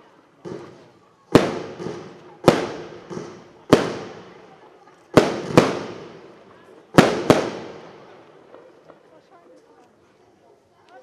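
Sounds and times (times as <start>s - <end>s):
faint firework pops: 0.4s - 4.5s
loud firework bangs: 0.4s - 8.4s.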